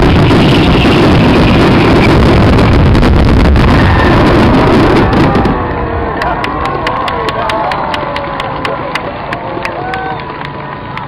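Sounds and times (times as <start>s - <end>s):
fireworks bursting: 0.0s - 5.8s
fireworks crackling: 0.0s - 6.9s.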